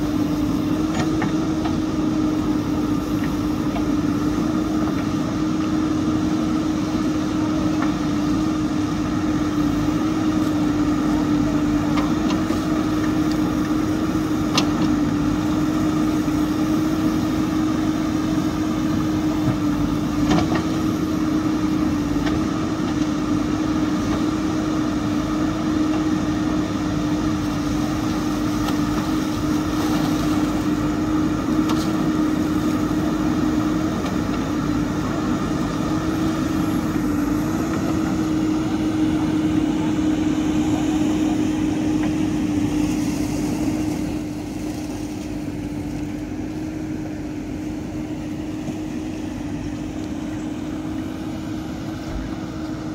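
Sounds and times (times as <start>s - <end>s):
diesel engine running: 0.0s - 52.9s.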